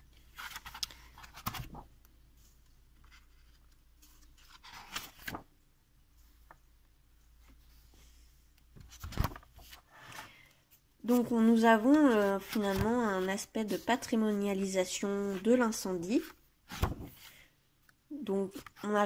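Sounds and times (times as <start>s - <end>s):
book pages rustling: 0.2s - 5.5s, 8.8s - 17.5s.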